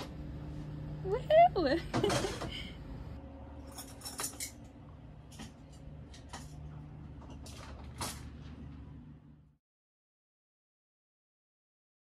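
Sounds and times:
low hum: 0.0 - 9.6.

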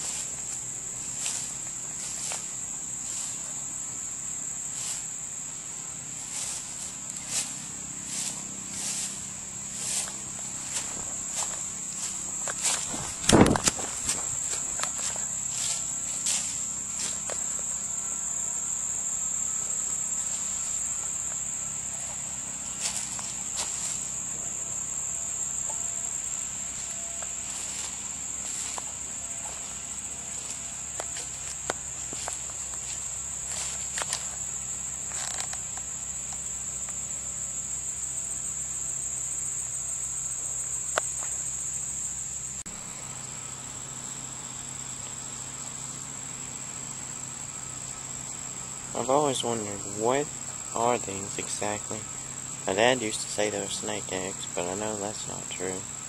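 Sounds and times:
insects chirring: 0.0 - 56.0
footsteps and handling clicks: 10.7 - 15.2.

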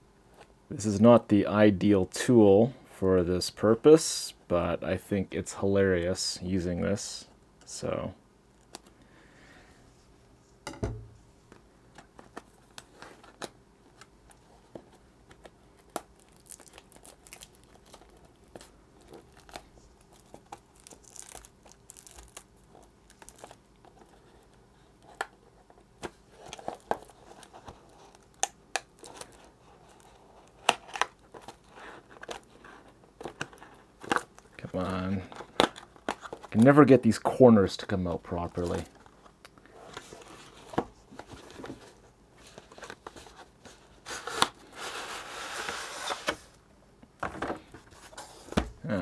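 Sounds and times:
thump on table: 10.7 - 11.2
plastic wrap crinkling and tearing: 15.4 - 24.5.

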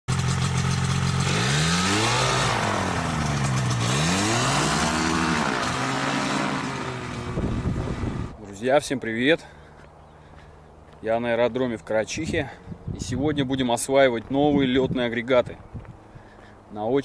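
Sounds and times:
paramotor engine revving: 0.1 - 8.4.

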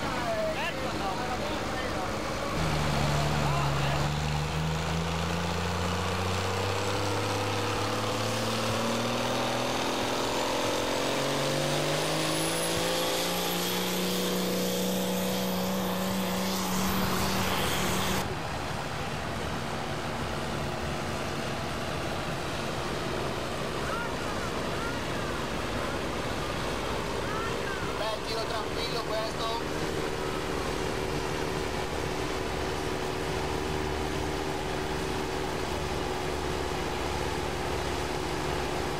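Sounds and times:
tractor diesel engine at full load: 0.0 - 38.9
thin high whine: 13.8 - 18.2.

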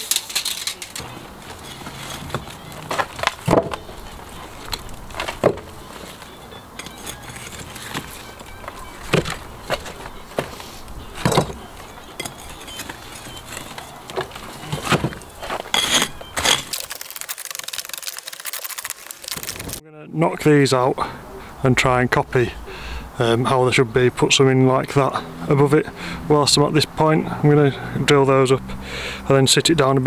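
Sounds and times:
hammer and chisel striking brick: 11.2 - 16.7.

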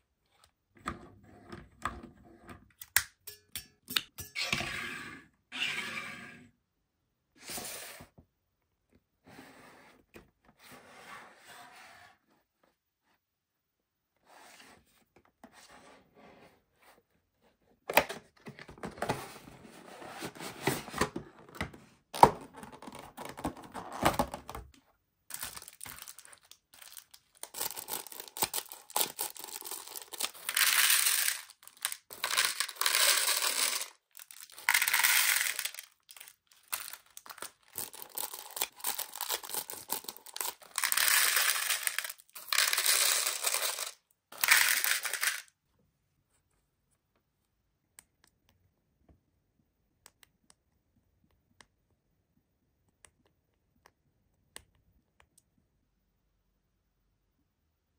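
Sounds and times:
plastic film crinkling: 25.3 - 44.0.

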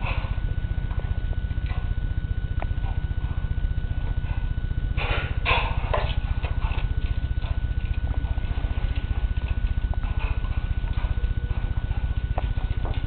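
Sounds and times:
low fluttering hum: 0.0 - 13.0
rat scratching and rustling: 4.1 - 13.0.

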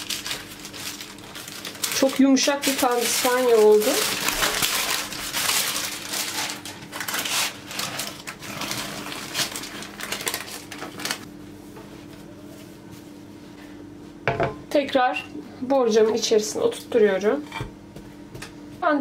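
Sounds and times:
baking paper rustling: 0.0 - 13.4.

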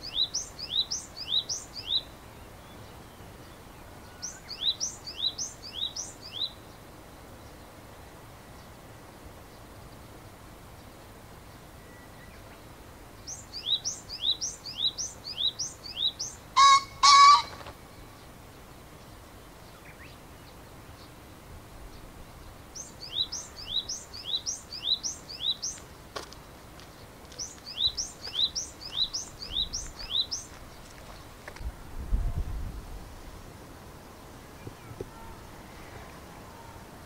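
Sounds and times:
songbird two-note calls: 13.3 - 17.6
pheasant crowing: 15.4 - 18.0.

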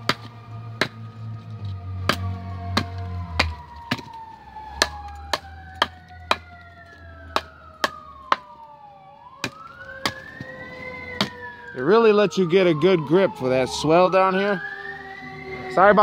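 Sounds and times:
knife chopping into stick: 0.0 - 1.0, 2.1 - 4.2, 4.8 - 6.5, 7.3 - 8.5, 9.4 - 10.3, 11.2 - 11.4
siren wailing: 0.0 - 16.0.

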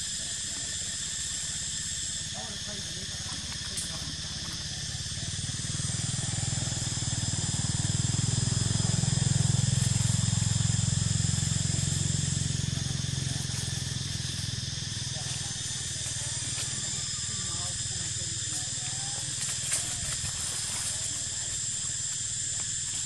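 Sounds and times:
passing vehicle engine drone: 4.9 - 15.8.

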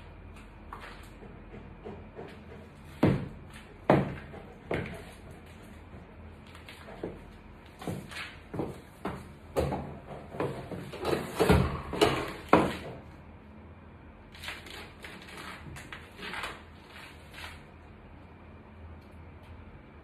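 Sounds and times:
high heels knocking on tile floor: 1.2 - 6.0, 6.8 - 13.0.

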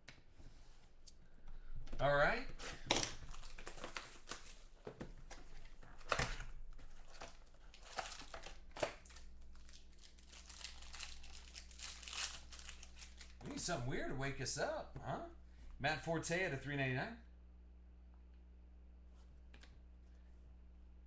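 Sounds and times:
plastic pack crinkling and tearing: 2.6 - 13.4.

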